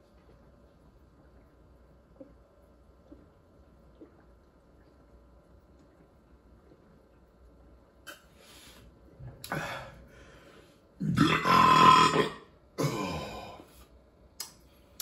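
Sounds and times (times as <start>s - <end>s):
man belching loudly: 11.0s - 13.6s.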